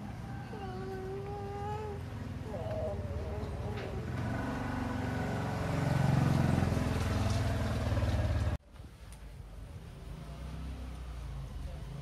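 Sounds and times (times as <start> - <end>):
vehicle engine running: 0.8 - 8.6.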